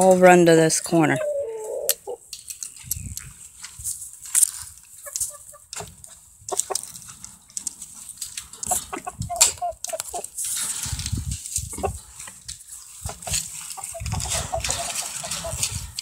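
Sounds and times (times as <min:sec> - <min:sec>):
chickens clucking: 0:00.1 - 0:16.0
rustling: 0:02.3 - 0:16.0
metal fence wire rattling: 0:03.6 - 0:16.0.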